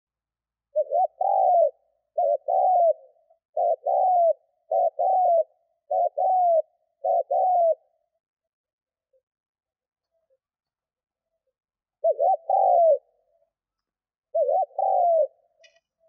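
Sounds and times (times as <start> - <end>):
dove cooing: 0.7 - 8.2, 12.0 - 13.5, 14.3 - 15.9.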